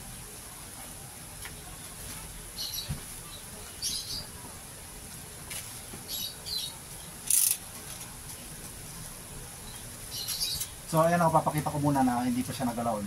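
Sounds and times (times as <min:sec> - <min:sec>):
small birds chirping: 0:01.5 - 0:04.5, 0:06.0 - 0:07.5, 0:08.4 - 0:13.0.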